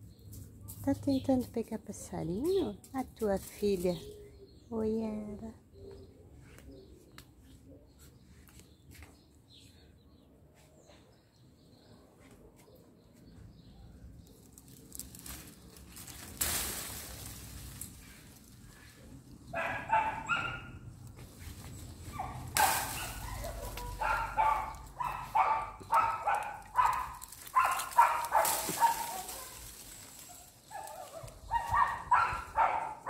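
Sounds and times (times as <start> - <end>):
leaves and branches rustling: 0.1 - 5.4, 13.1 - 33.0
small dog barking: 19.5 - 20.8, 22.2 - 29.6, 30.7 - 33.0.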